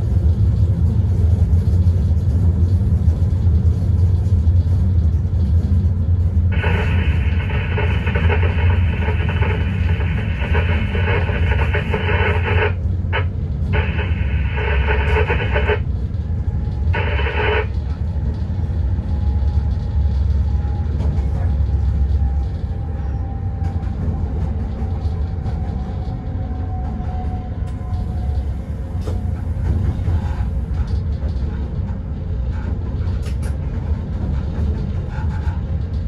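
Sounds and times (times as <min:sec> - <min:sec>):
electric locomotive low rumble: 0:00.0 - 0:36.0
radio hiss bursts: 0:06.5 - 0:15.8, 0:17.0 - 0:17.7.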